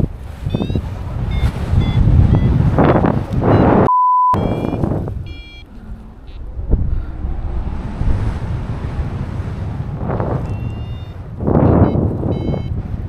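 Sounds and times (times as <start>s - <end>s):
wind rushing over microphone: 0.0s - 13.0s
steady bleep tone: 0.4s - 7.1s, 10.4s - 12.8s
short electronic beeps: 0.5s - 6.4s, 10.5s - 12.8s.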